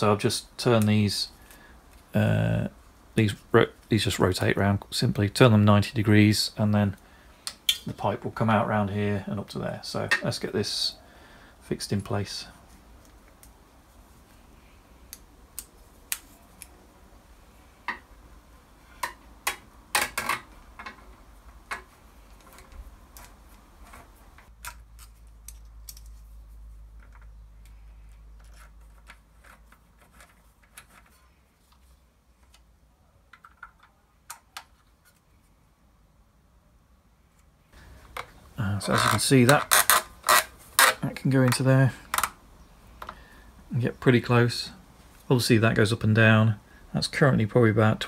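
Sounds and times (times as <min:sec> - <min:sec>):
clicks and taps of metal parts: 0:24.4 - 0:26.2.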